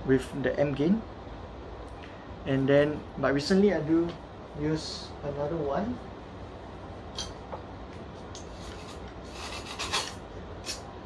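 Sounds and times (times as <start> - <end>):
low steady hum: 0.0 - 11.0
scraping rustle: 8.4 - 10.2.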